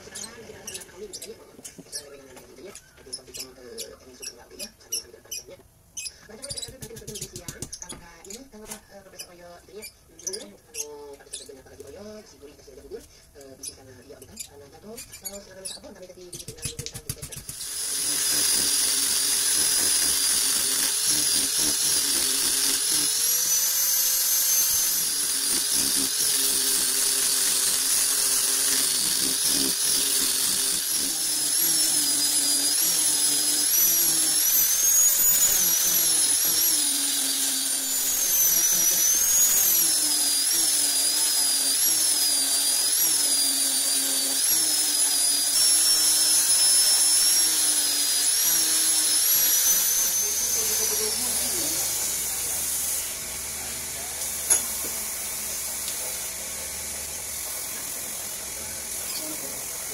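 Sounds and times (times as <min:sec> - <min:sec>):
angle grinder sanding wood: 0:17.4 - 0:59.9.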